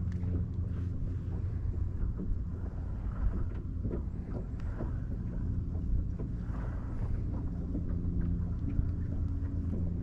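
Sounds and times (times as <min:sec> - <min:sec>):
light ticks: 0:00.0 - 0:00.7, 0:03.4 - 0:05.1, 0:07.7 - 0:09.9
low steady hum: 0:00.0 - 0:10.0.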